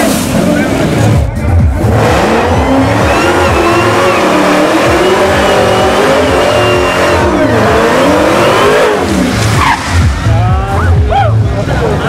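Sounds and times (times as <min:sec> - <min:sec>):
car engine revving hard: 0:00.0 - 0:12.0
tyres squealing: 0:02.1 - 0:10.4.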